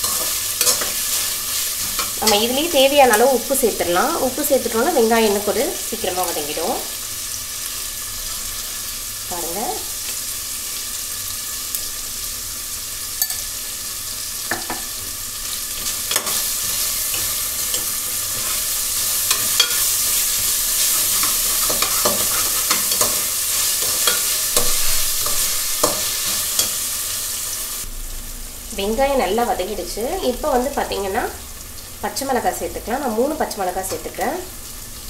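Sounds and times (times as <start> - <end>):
spoon scraping a pan: 0.0 - 3.6, 15.7 - 27.2
onions sizzling in oil: 0.0 - 35.0.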